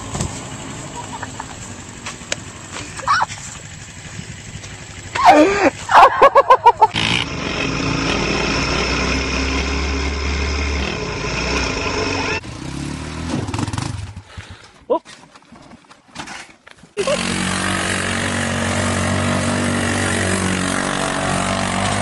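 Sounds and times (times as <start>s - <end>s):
quad engine at high revs: 0.0s - 14.6s, 17.0s - 22.0s
person laughing: 0.9s - 1.7s, 5.2s - 7.0s, 17.0s - 17.4s
person shouting: 3.0s - 3.3s, 5.2s - 6.3s.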